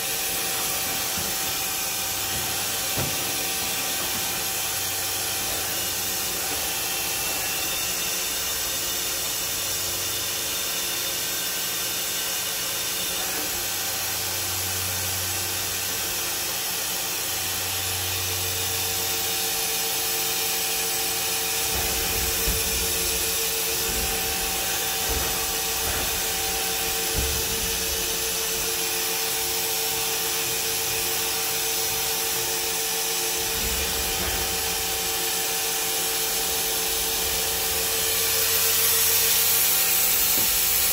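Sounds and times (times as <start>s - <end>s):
machine hum and whine: 0.0s - 40.9s
low machine thumps: 21.5s - 29.1s.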